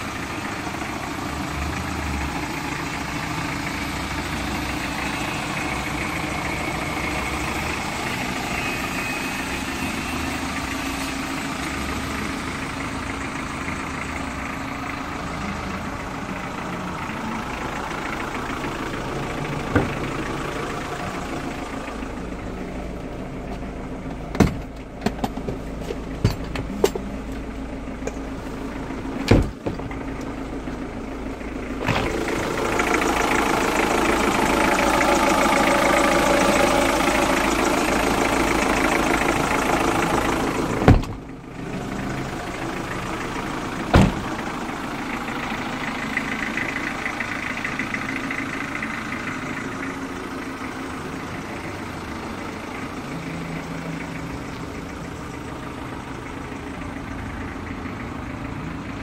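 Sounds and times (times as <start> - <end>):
diesel engine idling: 0.0 - 59.0
sharp knocks and clatters: 24.3 - 27.2.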